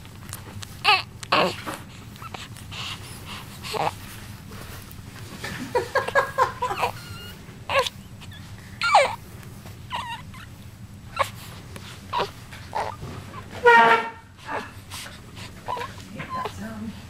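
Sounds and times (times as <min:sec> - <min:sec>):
baby squeaking and whimpering: 0:00.8 - 0:02.5, 0:06.7 - 0:09.2, 0:09.9 - 0:11.4, 0:12.1 - 0:13.6, 0:15.7 - 0:16.5.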